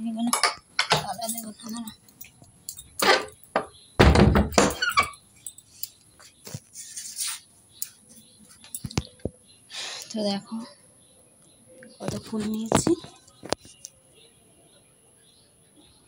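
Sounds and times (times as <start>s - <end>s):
knocks of objects being handled: 3.0s - 4.9s.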